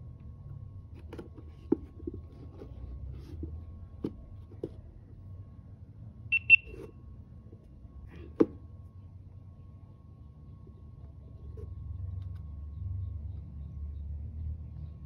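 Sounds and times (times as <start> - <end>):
high-pitched camera beeps: 6.3 - 6.7.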